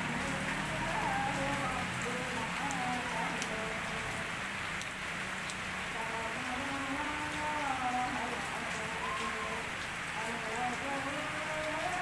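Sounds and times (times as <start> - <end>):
water drips ticking: 0.0 - 6.0
rain hissing on concrete: 0.0 - 12.0.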